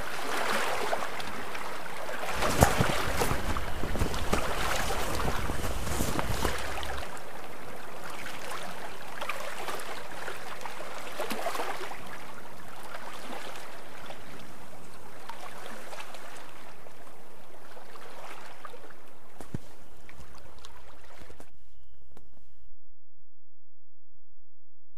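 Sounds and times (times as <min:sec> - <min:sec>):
water splashing along a hull: 0:00.0 - 0:21.6
wind rumble on microphone: 0:01.1 - 0:07.8.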